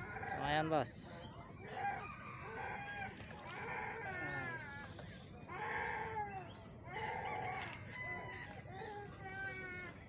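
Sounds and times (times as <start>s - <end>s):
animal wavering cries: 1.6s - 7.6s.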